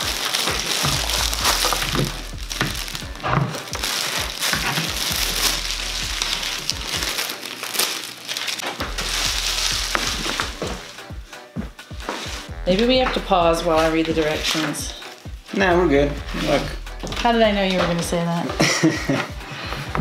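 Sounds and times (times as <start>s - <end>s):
plastic packaging crinkling: 0.0s - 11.1s, 11.9s - 12.5s, 13.2s - 15.6s
background music: 0.0s - 20.0s.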